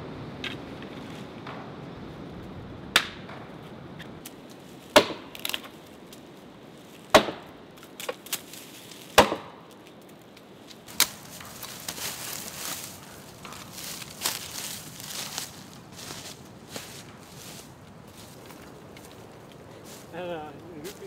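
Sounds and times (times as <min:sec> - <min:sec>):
dry branches cracking: 0:04.0 - 0:21.0
rustling: 0:09.8 - 0:21.0.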